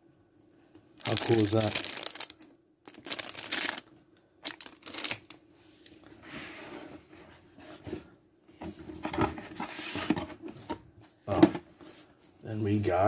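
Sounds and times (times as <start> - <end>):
packaging rustling: 1.0 - 5.4.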